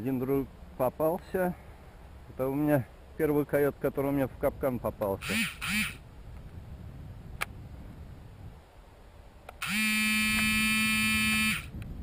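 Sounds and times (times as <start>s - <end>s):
flat electronic buzzing tone: 5.2s - 6.0s, 9.6s - 11.8s.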